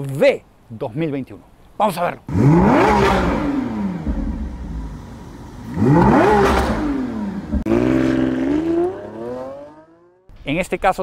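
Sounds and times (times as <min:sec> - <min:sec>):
car engine revving: 0:02.3 - 0:10.2.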